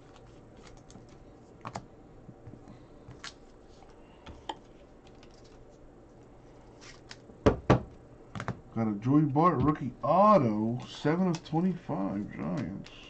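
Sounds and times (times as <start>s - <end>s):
cards and plastic sleeves clicking: 12.2s - 13.0s.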